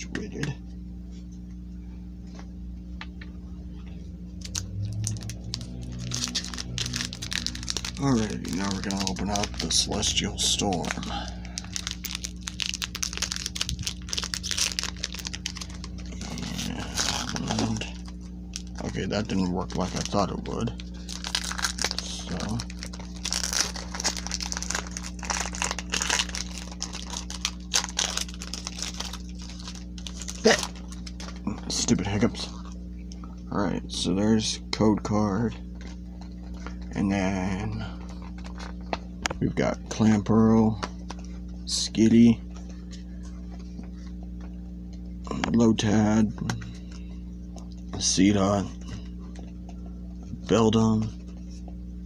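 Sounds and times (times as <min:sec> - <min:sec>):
low hum: 0:00.0 - 0:52.0
trading cards clicking and rustling: 0:04.4 - 0:32.6
foil wrapper crinkling and tearing: 0:04.4 - 0:32.8, 0:38.1 - 0:39.0.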